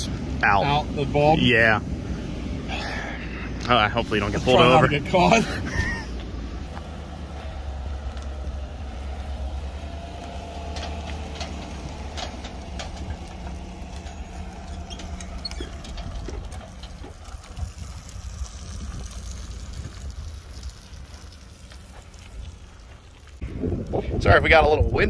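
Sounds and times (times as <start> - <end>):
truck engine running low: 0.0 - 24.2
wind buffeting microphone: 4.8 - 22.7, 23.3 - 25.0
clicks and rattles: 10.2 - 19.3.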